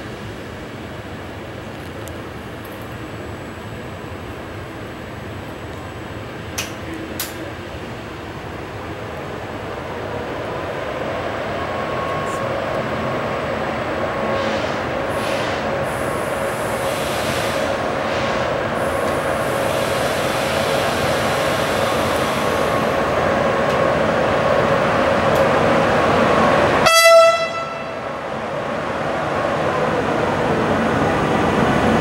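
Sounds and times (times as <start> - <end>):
train rail noise: 0.0 - 32.0
short high train horn: 26.8 - 28.1.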